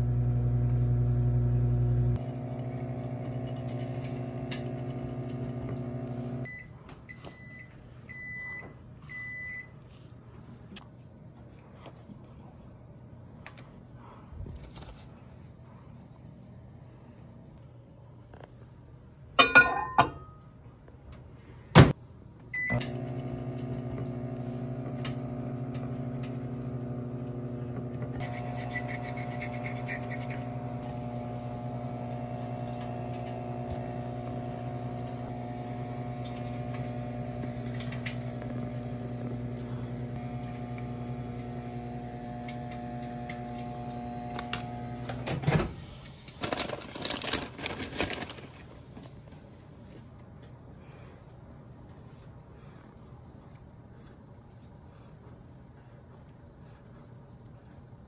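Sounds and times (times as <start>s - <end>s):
microwave oven humming: 0.0s - 9.7s, 22.5s - 46.7s.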